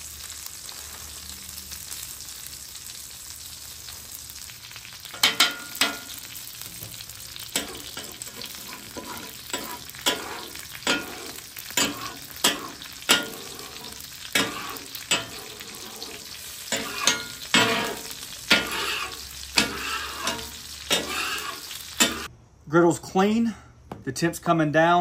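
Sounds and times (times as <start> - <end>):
oil sizzling: 0.0 - 22.3
metal spatula scraping griddle: 5.2 - 22.3.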